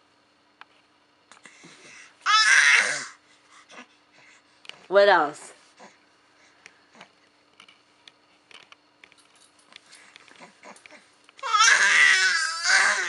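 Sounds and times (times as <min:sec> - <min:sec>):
baby vocalizing: 0:10.4 - 0:13.0.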